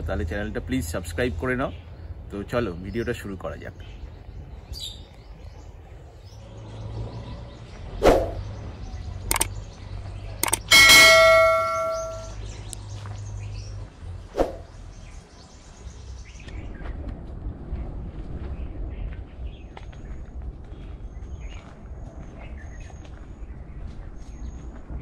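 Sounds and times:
sharp clicks: 9.3 - 9.6, 10.4 - 12.3
bright bell ding: 10.4 - 12.4.

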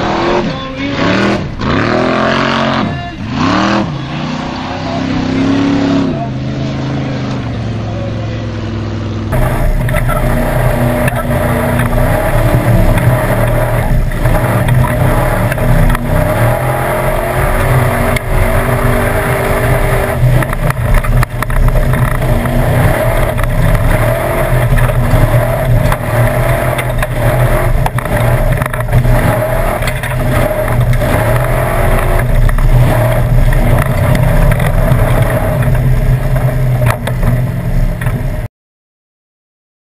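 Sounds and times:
engine running hard: 0.0 - 38.5
chassis knocks and rattles: 9.3 - 38.5.

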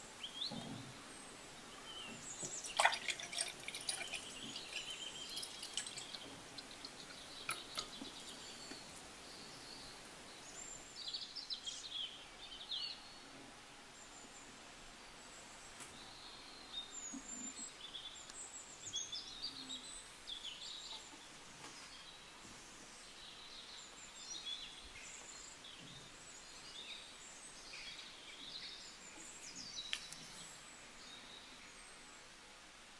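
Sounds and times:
small birds chirping: 0.0 - 13.4, 15.2 - 32.1
low hiss: 0.0 - 32.9
juice trickling into a glass: 2.4 - 8.7.

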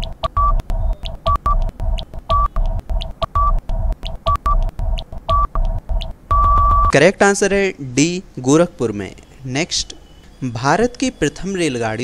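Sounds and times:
short electronic beeps: 0.0 - 3.6, 4.3 - 7.0
low pulsing beat: 0.0 - 7.0.

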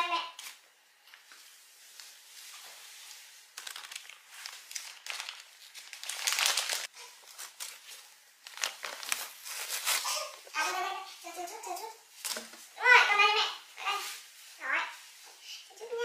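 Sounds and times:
plastic packaging crinkling: 2.5 - 10.4.

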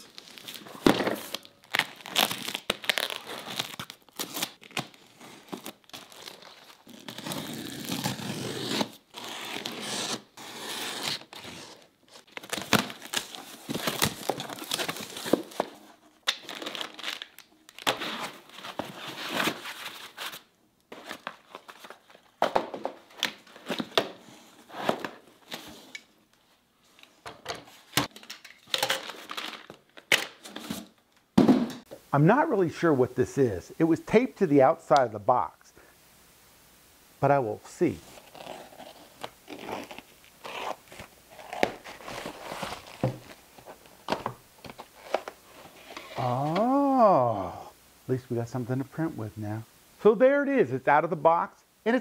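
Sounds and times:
plastic wrap tearing and crinkling: 0.0 - 22.4, 38.0 - 46.8.

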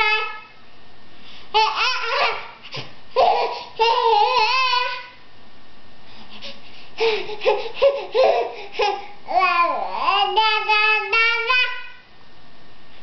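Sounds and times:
baby babbling: 1.6 - 2.6, 7.0 - 12.0.

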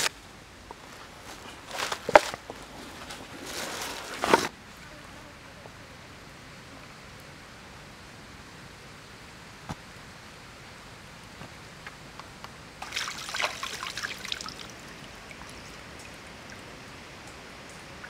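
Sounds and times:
moving stream water: 0.0 - 18.0
water splashing from rinsing meat: 12.8 - 16.6.

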